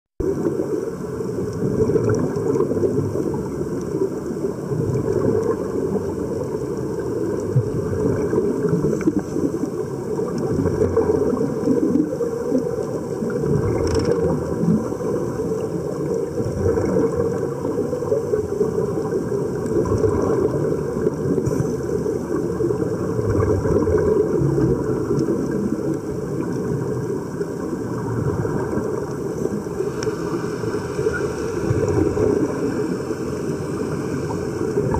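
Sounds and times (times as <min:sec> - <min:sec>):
low churning rumble: 0:00.2 - 0:34.9
underwater bubbling: 0:00.2 - 0:34.9
faint click: 0:29.0 - 0:30.2.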